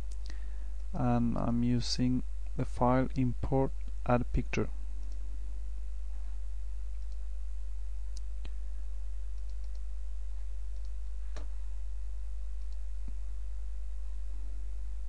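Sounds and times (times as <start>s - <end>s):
low electrical hum: 0.0s - 15.0s
computer mouse clicks: 5.0s - 5.2s, 7.0s - 7.2s, 9.3s - 9.9s, 10.7s - 11.5s, 12.6s - 12.8s.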